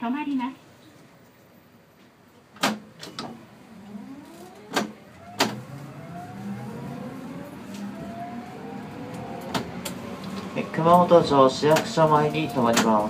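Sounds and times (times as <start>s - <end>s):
electric tram motor whine: 3.0s - 13.0s.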